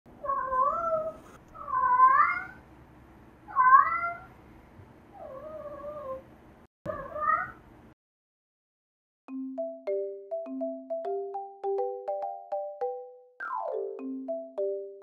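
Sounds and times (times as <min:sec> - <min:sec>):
cat meowing: 0:00.2 - 0:02.6, 0:03.5 - 0:04.3.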